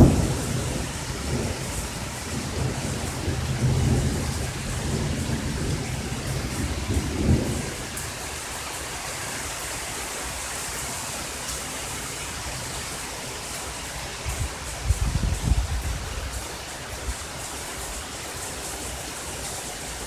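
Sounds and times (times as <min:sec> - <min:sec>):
rumbling thunder: 0:00.0 - 0:08.5
heavy rain: 0:00.0 - 0:20.0.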